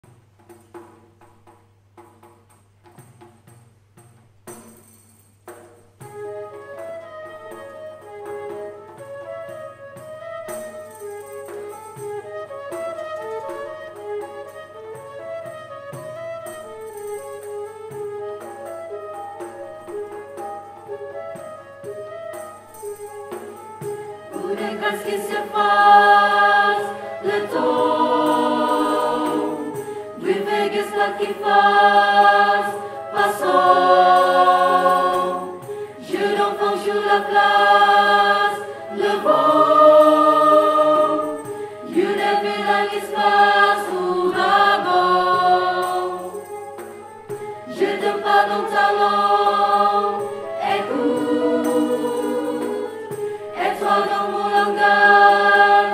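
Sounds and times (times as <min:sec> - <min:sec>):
choir singing sustained chords: 0:24.2 - 0:46.6, 0:47.6 - 0:55.9.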